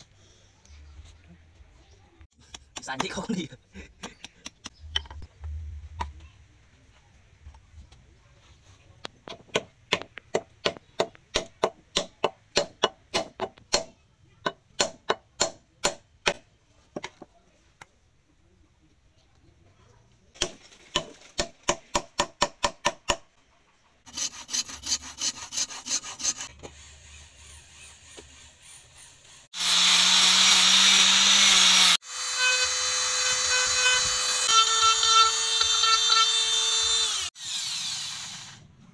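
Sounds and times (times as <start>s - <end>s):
handsaw cutting wood: 24.1s - 38.6s.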